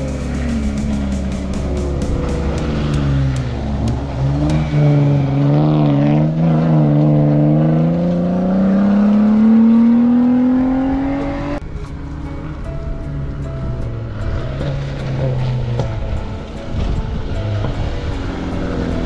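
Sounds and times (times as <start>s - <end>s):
race vehicle engine revving: 0.0s - 11.6s.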